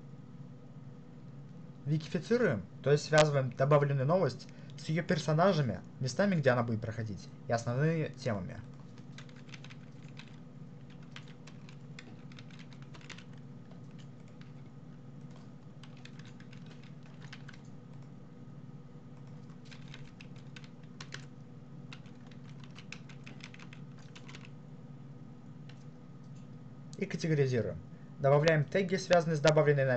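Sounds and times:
computer keyboard typing: 0:08.6 - 0:18.2, 0:19.2 - 0:24.6, 0:25.6 - 0:26.5.

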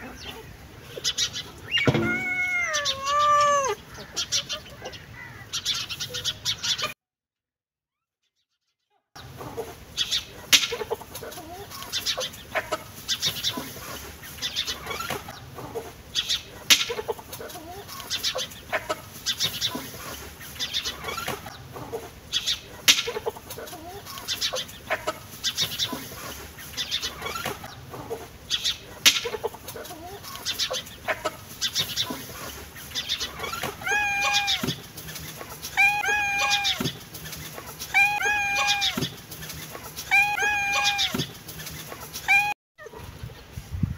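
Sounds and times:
longer pitched animal calls: 0:01.7 - 0:03.8, 0:33.4 - 0:34.6, 0:35.8 - 0:36.8, 0:37.9 - 0:39.0, 0:40.1 - 0:41.2
short sharp animal calls: 0:01.7 - 0:03.8.

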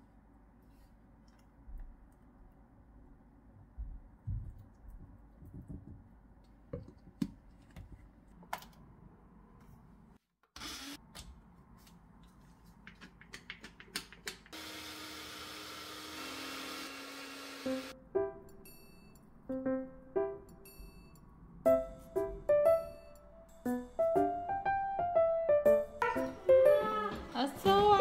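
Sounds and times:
blender motor humming: 0:14.6 - 0:17.9.

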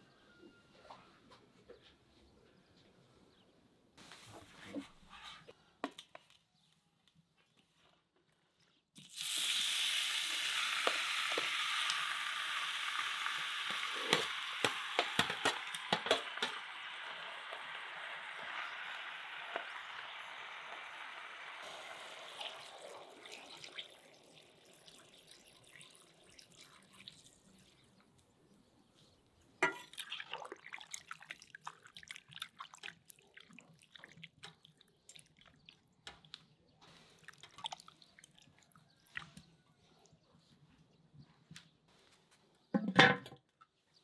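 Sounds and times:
crackles and pops of frying meat: 0:09.0 - 0:25.0
meat frying hiss: 0:09.0 - 0:26.6.

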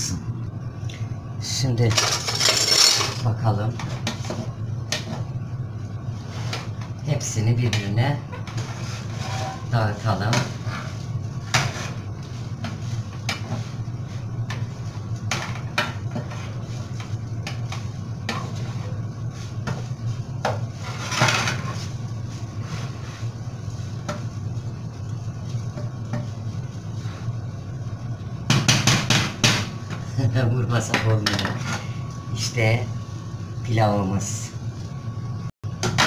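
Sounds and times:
steady low hum: 0:00.0 - 0:36.0
wooden spoon scraping frying pan: 0:06.2 - 0:06.8, 0:08.4 - 0:24.3, 0:31.4 - 0:31.9.

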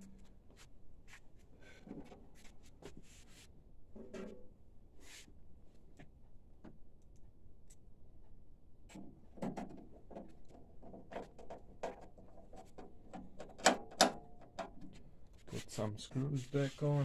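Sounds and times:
plastic parts clicking and knocking: 0:08.9 - 0:15.0.

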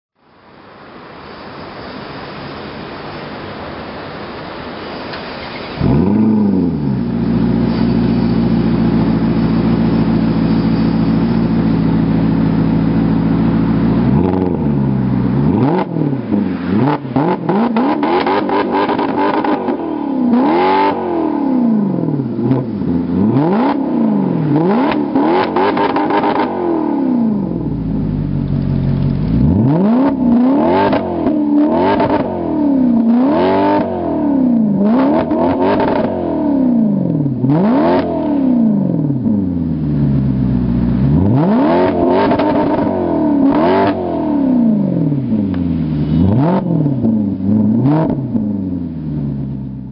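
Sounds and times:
car engine idling and revving: 0:05.1 - 0:49.9
exhaust crackles: 0:05.2 - 0:49.9.

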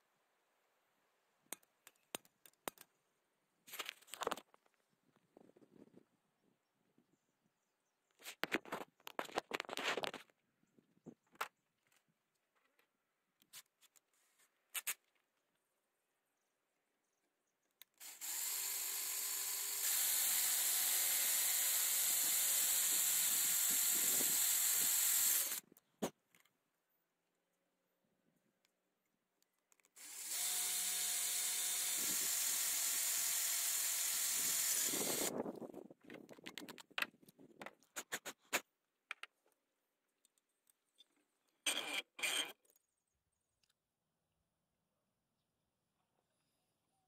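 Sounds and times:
power drill whirring: 0:18.0 - 0:25.6, 0:30.0 - 0:35.3
metal tool scraping metal plate: 0:41.6 - 0:42.6.

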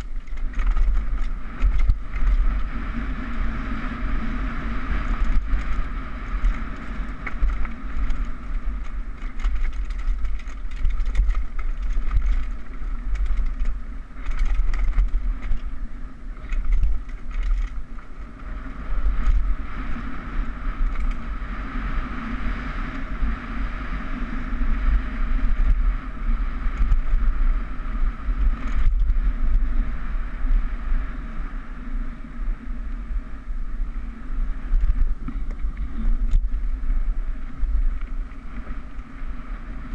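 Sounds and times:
bike clicks and rattles: 0:00.0 - 0:39.9
wind rush: 0:00.0 - 0:39.9.

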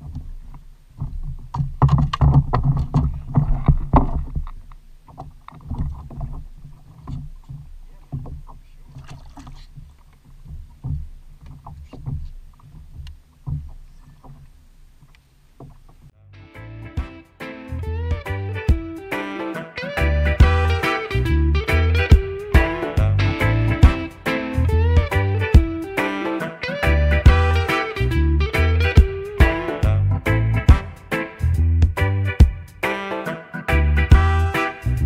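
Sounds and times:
fishing gear knocks and clicks: 0:00.0 - 0:16.0
waves slapping kayak hull: 0:00.0 - 0:16.2.

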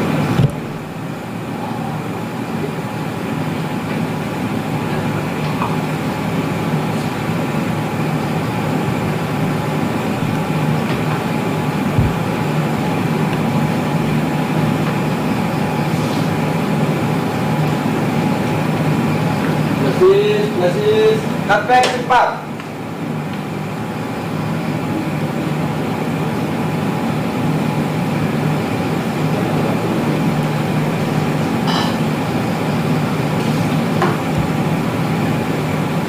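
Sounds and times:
engine droning: 0:00.0 - 0:36.0
low thump: 0:12.0 - 0:12.3.

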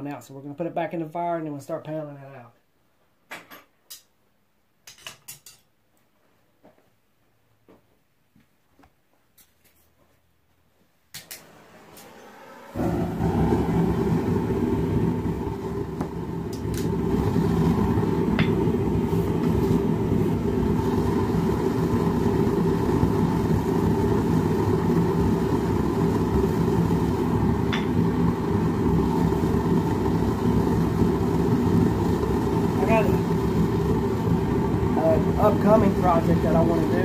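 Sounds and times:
gas burner rushing: 0:11.2 - 0:37.0.

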